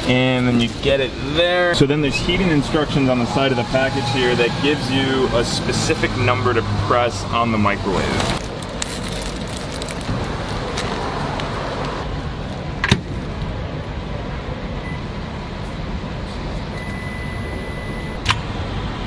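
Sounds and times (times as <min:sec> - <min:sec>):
road traffic hum: 0:00.0 - 0:19.0
packaging rustling: 0:08.1 - 0:12.0.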